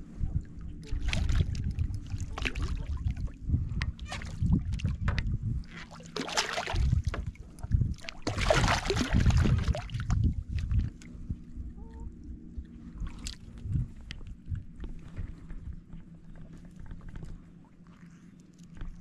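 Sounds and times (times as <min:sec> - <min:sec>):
waves slapping boat hull: 0:00.0 - 0:11.7.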